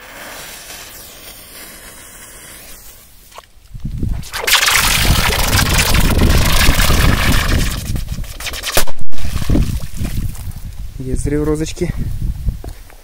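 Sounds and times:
fuse hissing: 0.0s - 3.3s.

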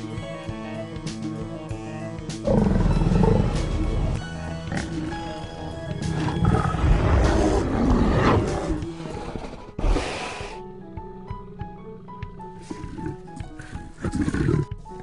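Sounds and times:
background music: 0.0s - 15.0s
bear roaring: 2.5s - 5.4s, 6.0s - 14.8s.

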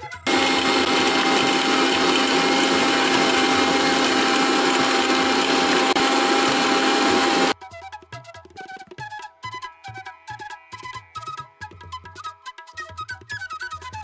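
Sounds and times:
mixer grinder grinding peanuts: 0.3s - 7.6s.

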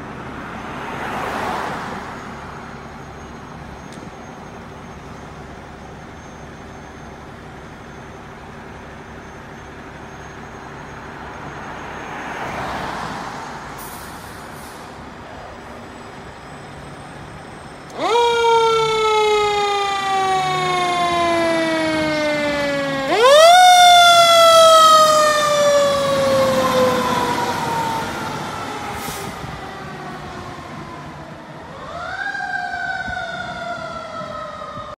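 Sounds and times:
fire truck siren winding: 16.8s - 34.9s.

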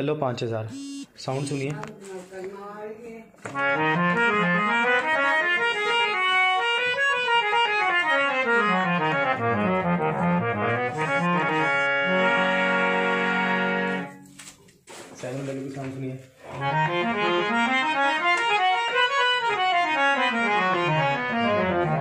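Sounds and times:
harmonium playing: 0.7s - 1.9s, 3.5s - 14.2s, 16.6s - 22.0s.

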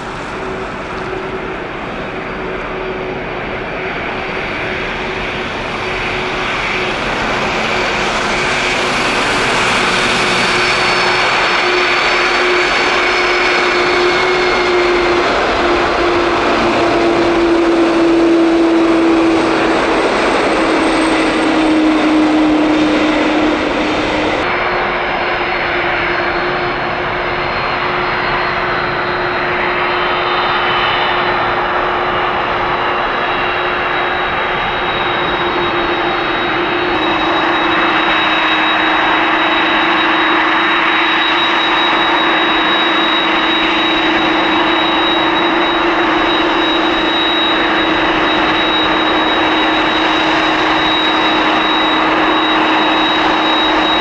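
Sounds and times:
jet engines running: 0.0s - 54.0s.

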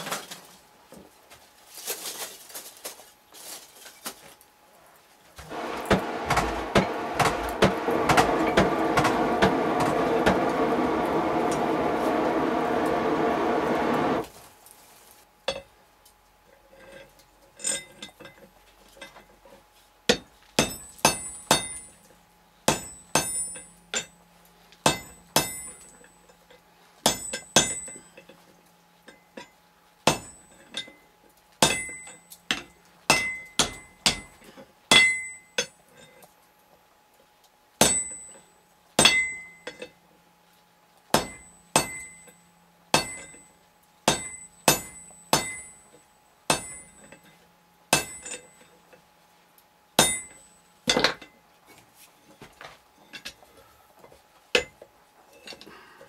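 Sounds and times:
hammer striking hot iron on anvil: 5.5s - 14.2s, 20.1s - 22.1s, 22.7s - 24.2s, 24.8s - 26.3s, 27.0s - 28.3s, 29.1s - 31.0s, 31.6s - 35.8s, 37.8s - 38.4s, 39.0s - 40.0s, 41.1s - 47.3s, 47.9s - 48.7s, 50.0s - 51.4s.

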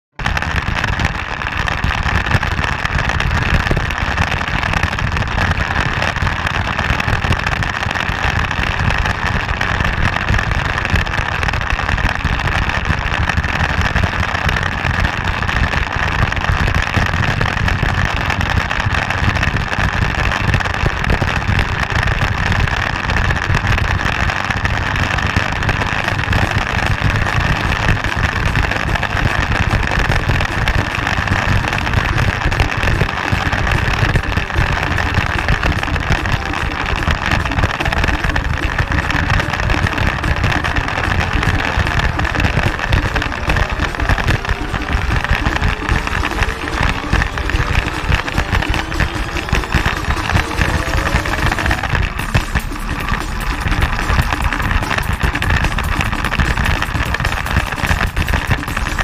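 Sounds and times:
motorcycle engine drone: 0.0s - 59.0s.

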